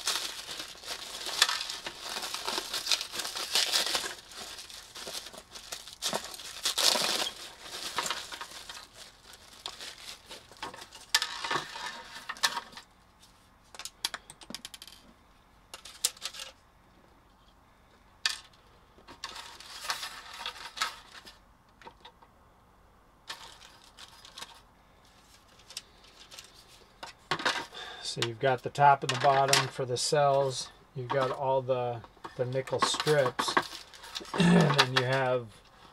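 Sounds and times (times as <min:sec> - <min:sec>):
plastic wrapping crinkling: 0:00.0 - 0:12.8, 0:32.5 - 0:35.3
plastic parts clicking and rattling: 0:00.0 - 0:12.9, 0:13.7 - 0:15.1, 0:15.7 - 0:16.6, 0:18.2 - 0:22.2, 0:23.3 - 0:24.6, 0:25.3 - 0:27.8, 0:32.0 - 0:35.7.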